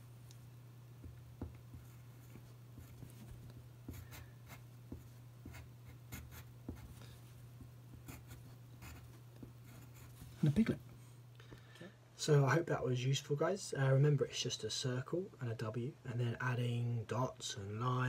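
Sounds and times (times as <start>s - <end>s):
steady low hum: 0.0s - 18.0s
pen scratching on paper: 1.4s - 7.0s, 8.0s - 10.2s.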